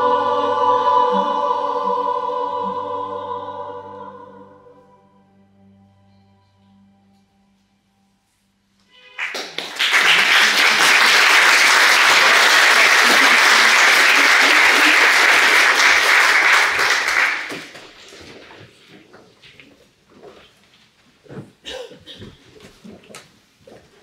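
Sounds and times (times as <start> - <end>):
person singing: 0.0 - 4.9
audience applauding: 9.2 - 18.1.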